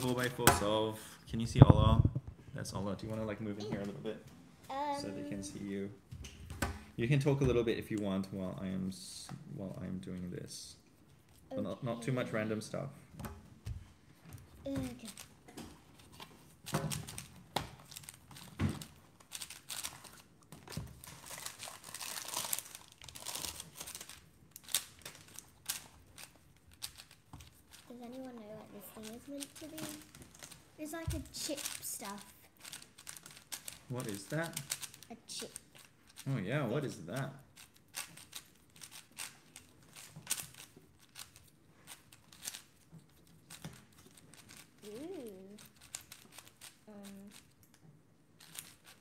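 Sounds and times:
paper packaging crinkling: 0:16.9 - 0:28.0
plastic clicks of puzzle cube: 0:32.6 - 0:36.3, 0:37.1 - 0:44.7, 0:45.6 - 0:47.8.

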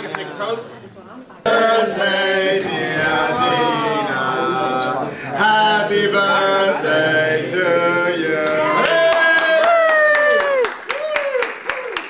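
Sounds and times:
people singing together: 0:01.4 - 0:09.1.

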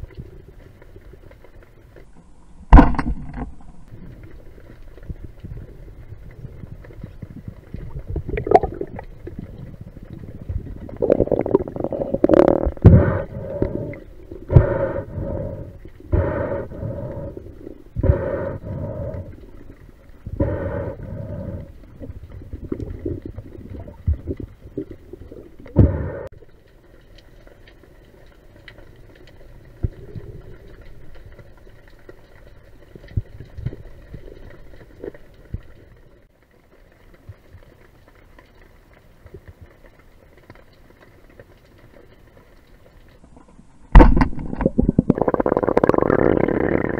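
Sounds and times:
water noise: 0:00.0 - 0:46.9
breathing through a snorkel: 0:11.0 - 0:23.9, 0:25.6 - 0:26.3.

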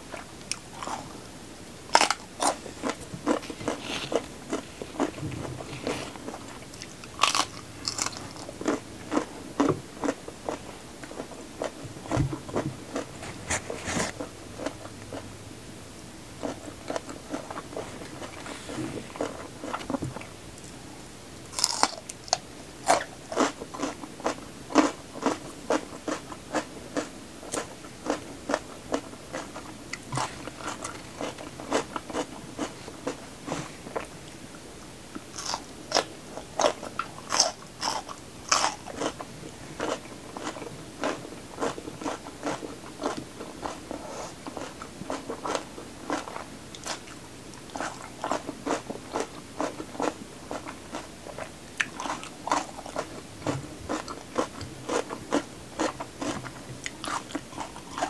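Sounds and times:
person chewing crunchy pepper: 0:00.0 - 0:01.3, 0:01.9 - 0:15.3, 0:16.4 - 0:20.8, 0:21.5 - 0:34.2, 0:35.1 - 0:58.0.

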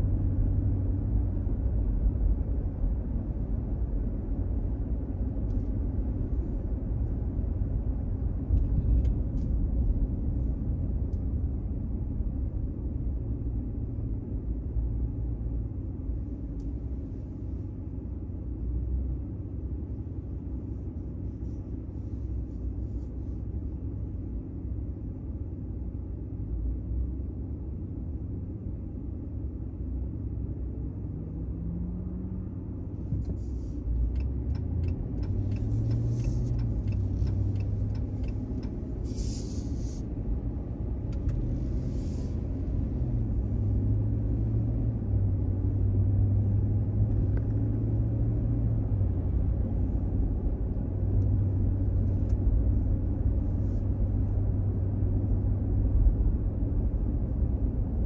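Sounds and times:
car engine: 0:00.0 - 0:58.0
road rumble: 0:00.0 - 0:58.0
short hissing sounds: 0:39.0 - 0:40.1, 0:41.7 - 0:42.4.

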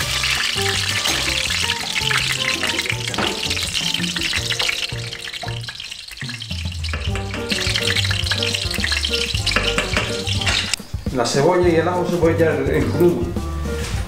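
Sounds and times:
background music with bass line: 0:00.0 - 0:05.7, 0:06.4 - 0:14.0
wooden spoon stirring pot: 0:00.0 - 0:10.8
pot of water boiling: 0:00.0 - 0:11.0.

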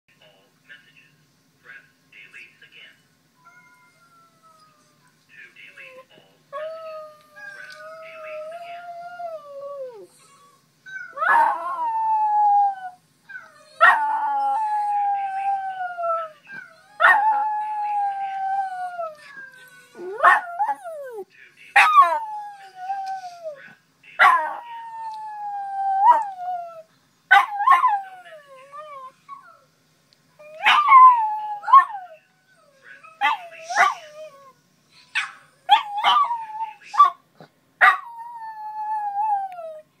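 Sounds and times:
dog howling: 0:03.4 - 0:05.0, 0:06.6 - 0:21.2, 0:35.6 - 0:37.2.

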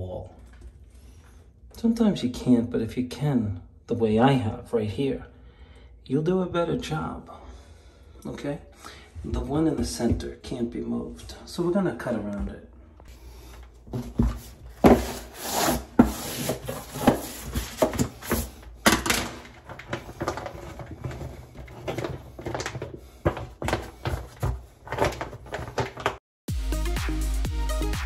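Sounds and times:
wallpaper crinkling and rubbing: 0:13.1 - 0:26.2.

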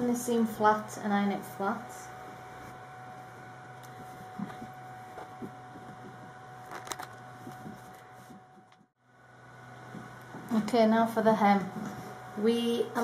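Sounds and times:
steady low hum: 0:00.0 - 0:13.0
iron rubbing on fabric: 0:01.6 - 0:08.7.

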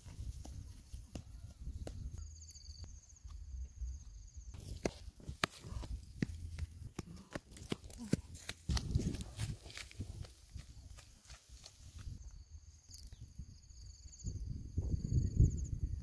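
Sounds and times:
footsteps crunching through dry grass: 0:04.6 - 0:12.2.

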